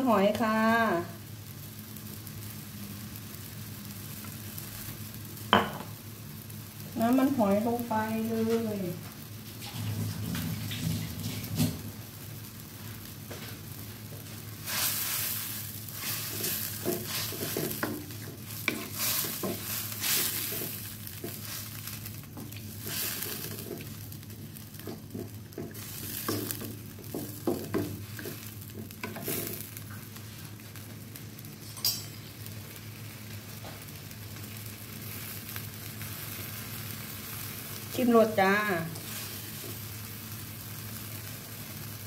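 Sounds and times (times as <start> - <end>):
spatula scraping a wok: 14.6 - 29.8, 38.9 - 39.9.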